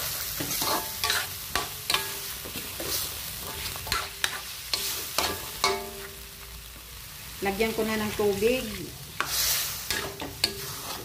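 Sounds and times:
food sizzling in a pan: 0.0 - 11.0
spatula scraping and knocking pan: 0.4 - 6.2.

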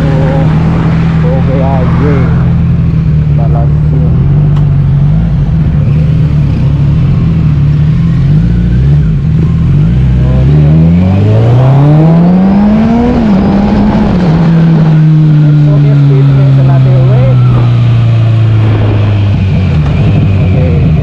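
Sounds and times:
motorcycle accelerating: 0.0 - 21.0
motorcycle engine idling: 2.4 - 10.5.

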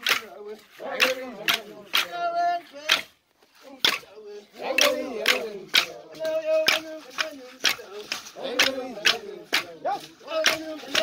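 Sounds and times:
voices singing and calling: 0.0 - 11.0
sharp percussive strikes: 3.8 - 11.0.

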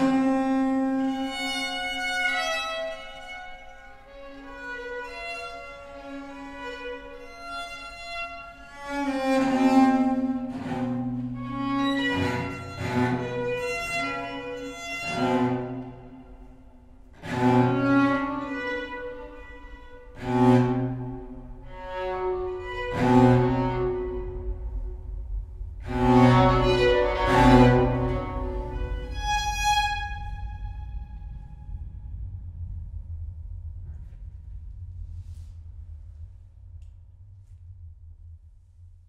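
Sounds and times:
violin playing held notes: 0.0 - 24.7, 25.8 - 31.4
low bowed string notes: 0.0 - 32.3.

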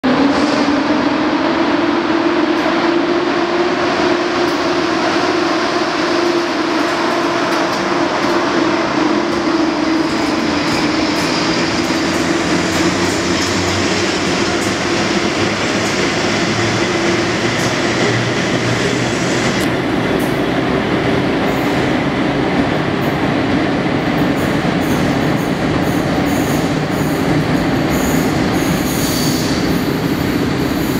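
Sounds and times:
wheels rumbling on rails: 0.0 - 30.9
electric locomotive hum: 0.1 - 30.9
high wheel squeal: 27.9 - 30.9.

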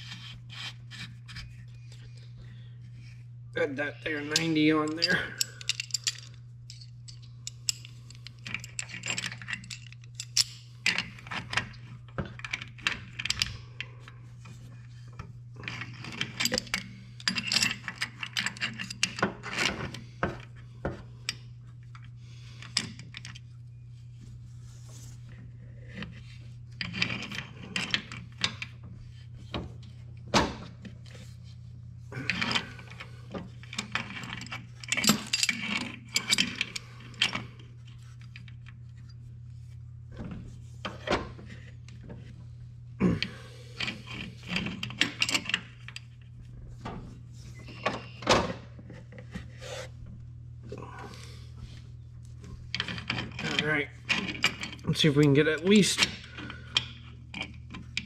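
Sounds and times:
metallic clinks and scrapes: 4.1 - 11.8, 32.2 - 39.2.

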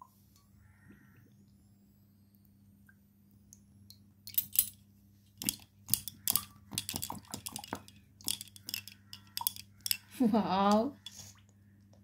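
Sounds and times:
clay pots clinking against steel bowl: 5.4 - 11.2.

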